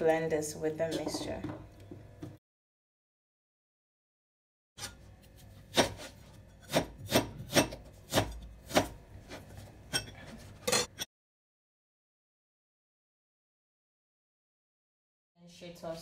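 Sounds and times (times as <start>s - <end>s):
knife slicing onion: 4.8s - 9.6s.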